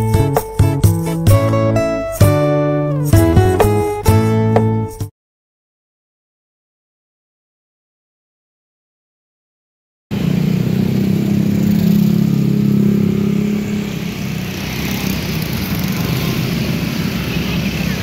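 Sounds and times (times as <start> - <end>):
vehicle engines running: 10.1 - 18.0.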